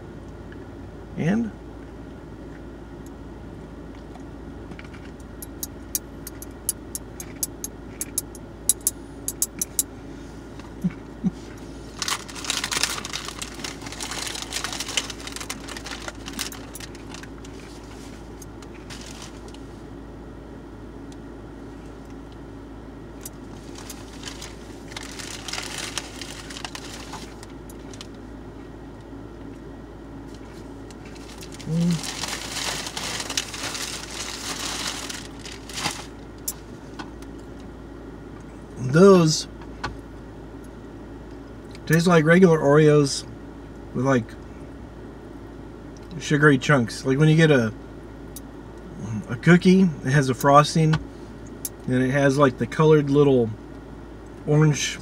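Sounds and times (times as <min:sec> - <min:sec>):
steady low hum: 0:00.0 - 0:55.0
package crinkling: 0:11.9 - 0:17.7, 0:18.7 - 0:19.6, 0:23.5 - 0:28.2, 0:31.0 - 0:36.2.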